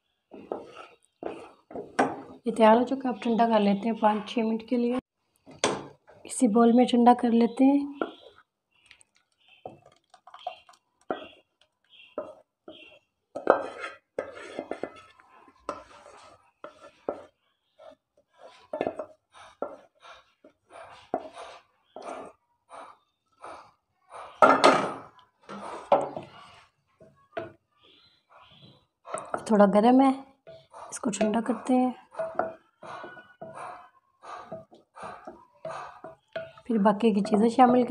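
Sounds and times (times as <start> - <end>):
spatula scraping glass bowl: 0.3 - 4.2, 9.5 - 26.8, 28.3 - 37.9.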